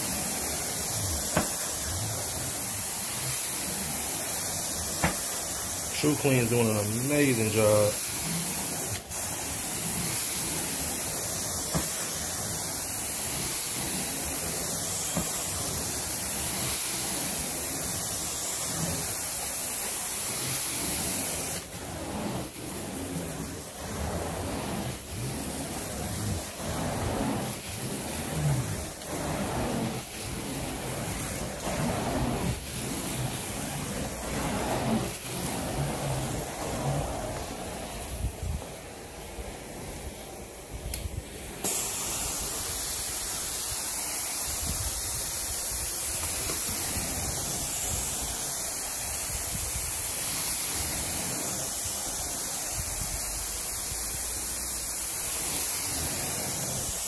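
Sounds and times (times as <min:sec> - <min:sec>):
carpet extraction wand hissing: 0:00.0 - 0:57.0.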